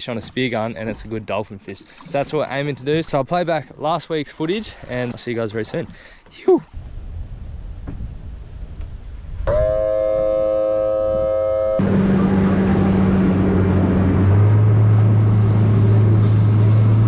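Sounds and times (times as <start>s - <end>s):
wind: 0.0s - 17.0s
outboard motor running: 11.8s - 17.0s.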